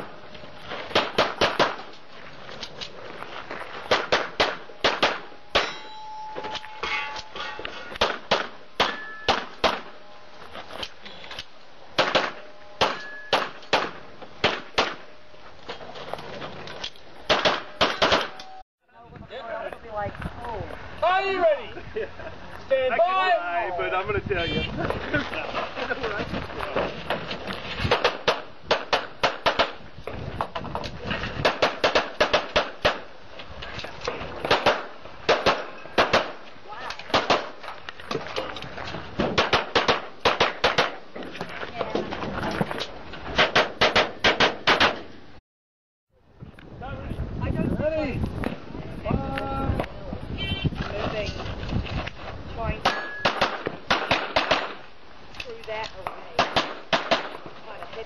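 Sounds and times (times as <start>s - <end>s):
pistol shots: 0.9s - 1.8s, 3.9s - 5.8s, 8.0s - 9.9s, 12.0s - 15.1s, 17.3s - 18.4s, 27.9s - 29.8s, 31.4s - 33.1s, 34.4s - 36.4s, 37.1s - 37.6s, 39.3s - 41.0s, 43.4s - 45.1s, 52.8s - 54.8s, 56.4s - 57.4s
short ringing tone: 5.4s - 7.8s, 8.9s - 9.3s, 12.4s - 13.4s, 18.2s - 18.6s.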